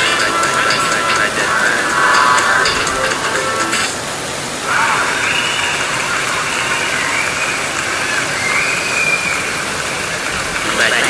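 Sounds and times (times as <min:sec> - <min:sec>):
faint wavering high tones: 0:00.0 - 0:04.3
heavy rain on pavement: 0:00.0 - 0:11.0.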